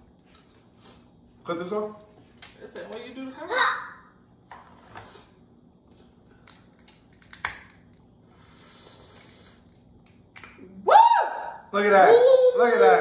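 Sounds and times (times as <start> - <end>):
crab shells cracking: 6.4 - 8.1.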